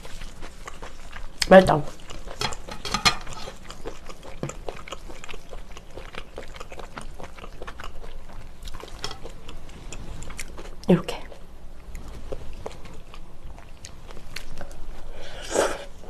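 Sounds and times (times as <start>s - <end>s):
chewing food: 0.0s - 16.0s
chopsticks stirring noodles in bowl: 1.9s - 5.4s, 8.7s - 9.4s.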